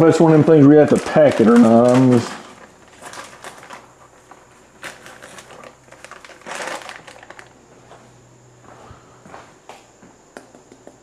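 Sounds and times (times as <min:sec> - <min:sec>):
wrapper crinkling and rustling: 0:00.0 - 0:07.6.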